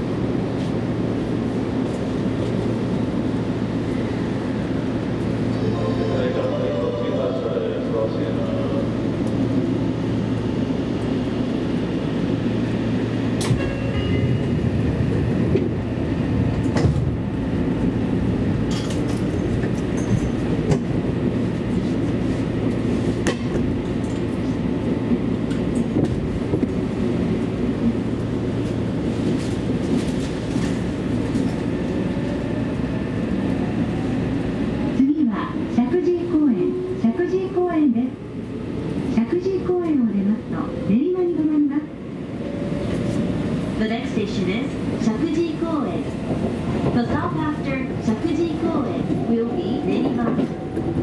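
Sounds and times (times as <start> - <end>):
train wheels rumbling on rails: 0.0 - 51.0
rail joint clicks: 13.3 - 14.6, 15.4 - 15.9, 16.5 - 21.0, 22.6 - 32.1, 46.1 - 51.0.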